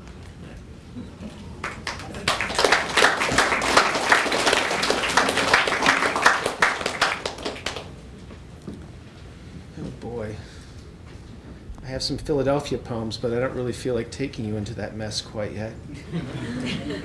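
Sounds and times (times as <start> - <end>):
audience applauding: 1.6 - 7.9.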